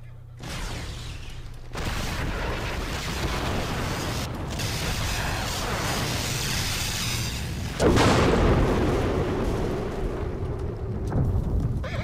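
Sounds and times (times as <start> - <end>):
cartoon explosion: 0.4 - 9.7.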